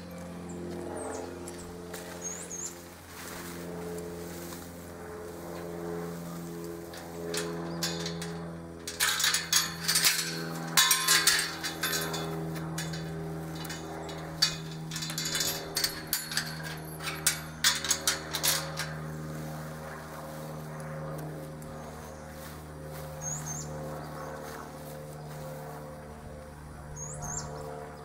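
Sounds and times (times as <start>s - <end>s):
steady low hum: 0.0s - 28.0s
metal gate clanking: 6.8s - 19.2s.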